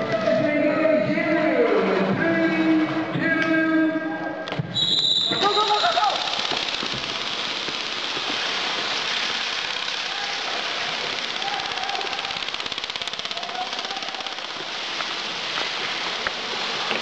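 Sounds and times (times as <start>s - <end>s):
airsoft rifle full-auto burst: 5.4s - 14.9s.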